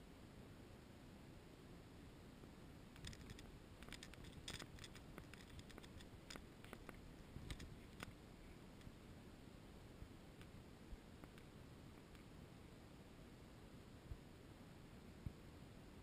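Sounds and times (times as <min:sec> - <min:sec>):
faint clicks and ticks: 0:02.9 - 0:09.0, 0:10.4 - 0:12.3.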